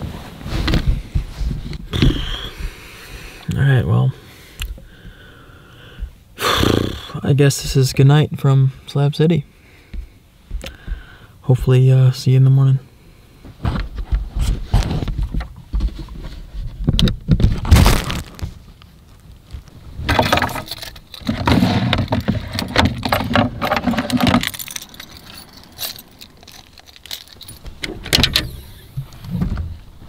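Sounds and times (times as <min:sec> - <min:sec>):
clothes and gear rustling: 0:00.0 - 0:02.0, 0:17.8 - 0:27.8
keys jangling: 0:23.7 - 0:27.8.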